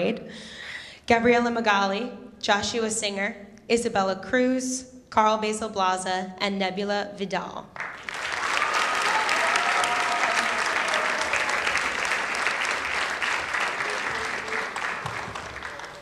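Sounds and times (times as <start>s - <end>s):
audience applauding: 7.8s - 16.0s
long cheer: 7.9s - 16.0s.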